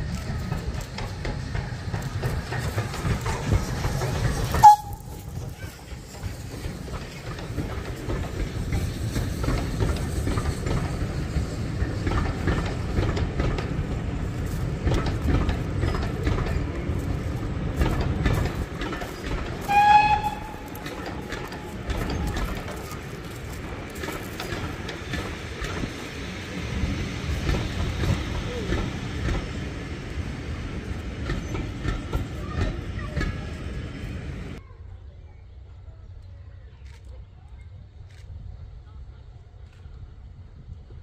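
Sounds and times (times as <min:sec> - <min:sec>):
wheels clicking over rail joints: 0:00.0 - 0:34.6
train rumbling past: 0:00.0 - 0:36.7
train whistle: 0:04.6 - 0:05.2, 0:19.6 - 0:21.6.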